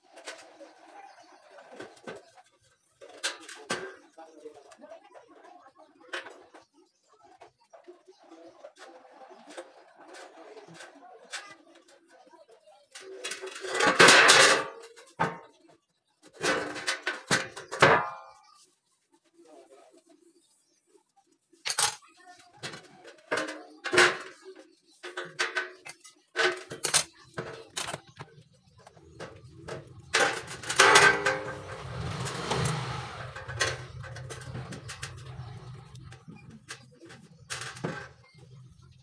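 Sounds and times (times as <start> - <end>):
metal scraping rattle: 12.9 - 15.5, 16.3 - 18.4, 22.6 - 39.0
metal frame clanking and knocking: 13.0 - 15.5, 22.6 - 38.9.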